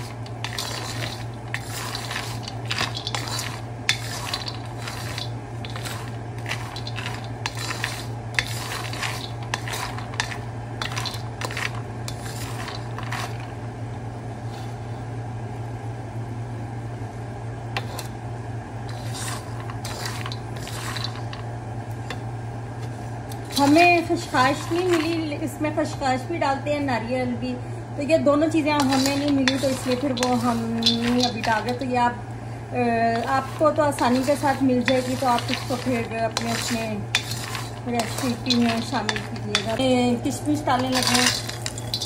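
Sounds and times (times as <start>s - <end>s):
nuts rattling in a wok: 0.0s - 13.5s, 18.9s - 21.5s, 23.4s - 26.0s, 28.5s - 32.2s, 33.0s - 42.0s
wooden spoon stirring nuts: 0.0s - 13.5s, 18.9s - 21.4s, 23.3s - 26.1s, 28.6s - 32.0s, 33.0s - 42.0s
steady low hum: 0.0s - 42.0s.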